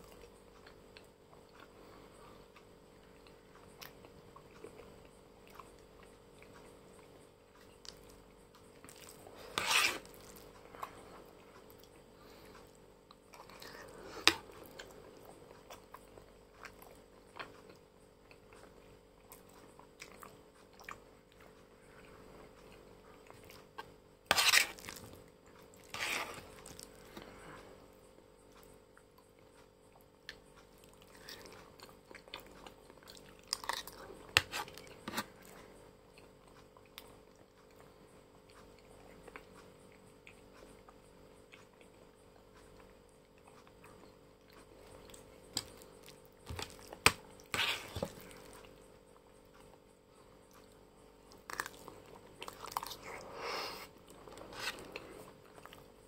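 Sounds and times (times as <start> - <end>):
faint steady hum: 0.0 - 56.0
wet chewing and smacking: 3.0 - 27.3, 28.5 - 49.8, 50.4 - 53.2.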